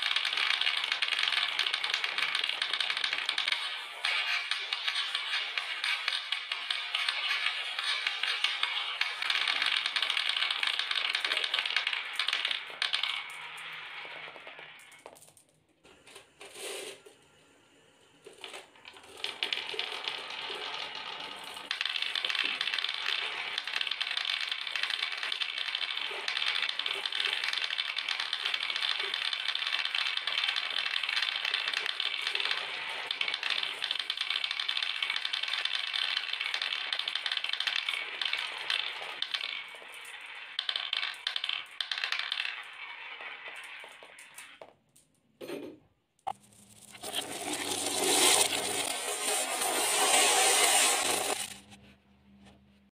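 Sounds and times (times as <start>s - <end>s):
marbles clattering down a run: 0.0s - 15.6s, 18.3s - 44.8s, 46.3s - 51.7s.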